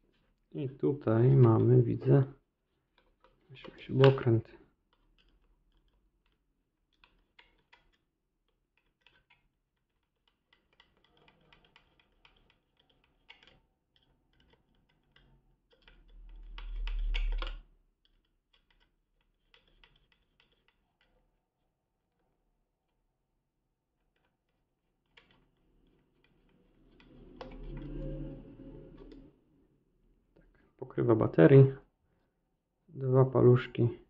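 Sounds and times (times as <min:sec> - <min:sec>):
screwdriver clicks and scrapes: 0:04.9 - 0:21.3.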